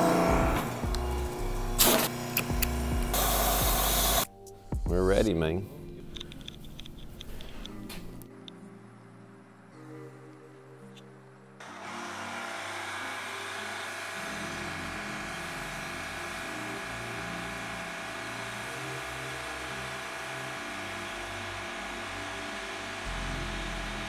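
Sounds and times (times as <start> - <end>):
washer engine and pump running: 0.0 - 4.2, 11.6 - 24.0
pressure washer spray hissing: 1.7 - 2.2, 3.1 - 4.3.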